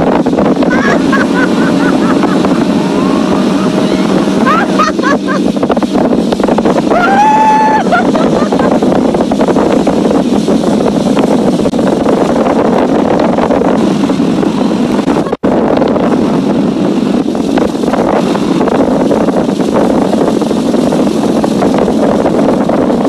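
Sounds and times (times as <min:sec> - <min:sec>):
outboard motor running: 0:00.0 - 0:23.0
rushing water from wake: 0:00.0 - 0:23.0
wind buffeting microphone: 0:00.0 - 0:23.0.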